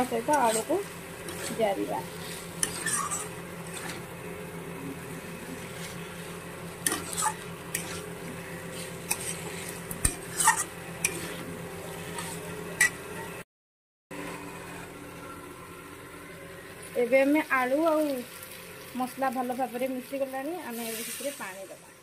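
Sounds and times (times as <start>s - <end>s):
metal spatula scraping a pan: 0.0s - 4.1s, 5.2s - 13.3s
light sizzle: 0.0s - 13.2s, 14.2s - 22.0s
steady low hum: 0.0s - 13.4s.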